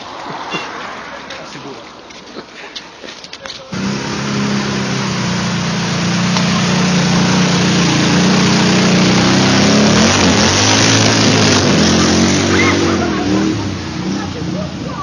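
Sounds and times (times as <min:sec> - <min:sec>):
quad bike engine revving: 0:03.7 - 0:15.0
water and mud splashing: 0:03.7 - 0:15.0.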